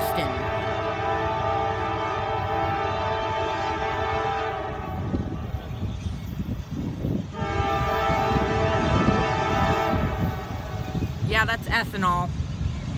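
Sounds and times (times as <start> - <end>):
locomotive air horn blasts: 0.0 - 5.4, 7.3 - 10.9
low rumble of train: 0.0 - 12.9.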